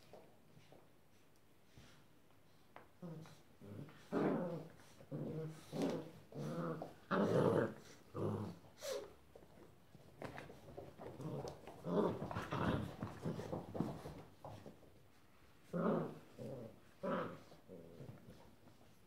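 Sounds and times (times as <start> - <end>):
puppies growling: 3.0 - 9.1, 10.3 - 14.7, 15.6 - 18.8.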